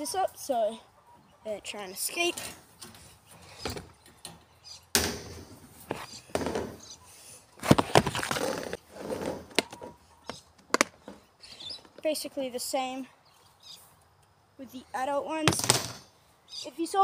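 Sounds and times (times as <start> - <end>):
plastic boxes clattering: 7.6 - 9.9.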